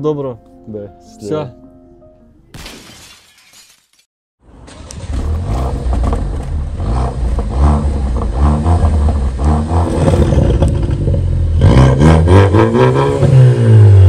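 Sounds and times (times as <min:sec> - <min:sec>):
car engine revving: 0:04.5 - 0:14.0.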